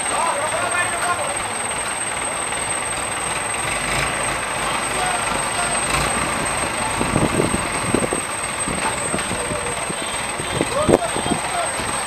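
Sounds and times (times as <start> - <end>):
crane diesel engine running: 0.0 - 12.0
men calling out: 9.0 - 11.9.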